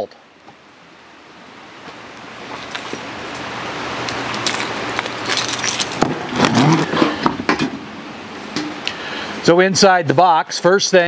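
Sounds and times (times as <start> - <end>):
small metal items jingling: 4.4 - 6.0.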